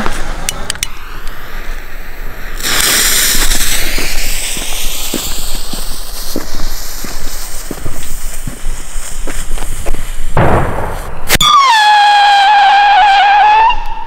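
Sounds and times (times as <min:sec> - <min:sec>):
fuse hissing: 0:00.0 - 0:11.4
lighter igniting fuse: 0:00.0 - 0:11.6
footsteps on paving stones: 0:04.0 - 0:10.2.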